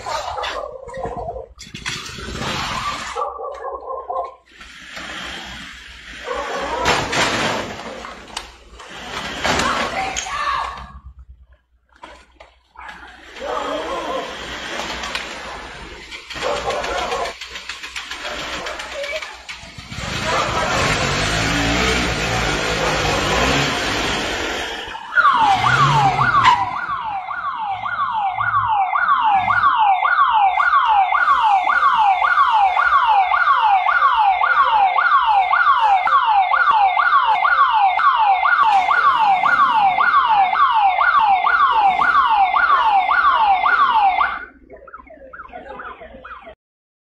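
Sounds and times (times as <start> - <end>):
electronic alarm siren: 19.8 - 46.6.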